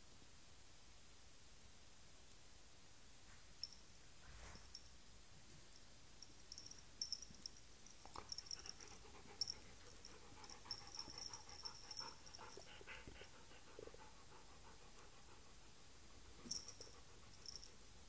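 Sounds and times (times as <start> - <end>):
rustling: 3.2 - 5.0
dog panting: 8.0 - 18.0.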